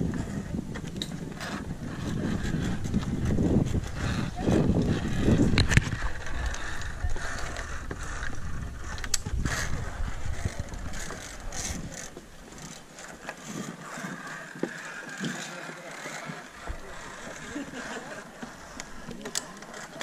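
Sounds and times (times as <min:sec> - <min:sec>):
low microphone rumble: 0:00.0 - 0:12.8, 0:16.5 - 0:19.2.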